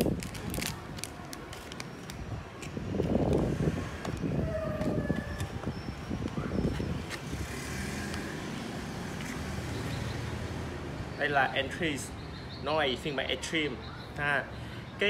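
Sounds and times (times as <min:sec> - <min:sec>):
plastic wrapping crinkling: 0:00.0 - 0:02.7.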